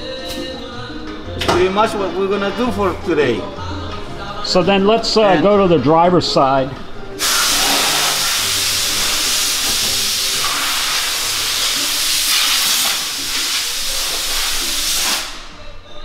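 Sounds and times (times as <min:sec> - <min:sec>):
loud steady hiss: 0:07.1 - 0:15.8.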